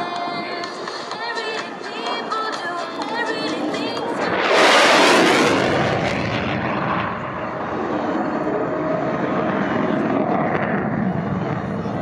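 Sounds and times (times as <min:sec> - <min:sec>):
fighter jet roaring past: 0:03.6 - 0:12.0.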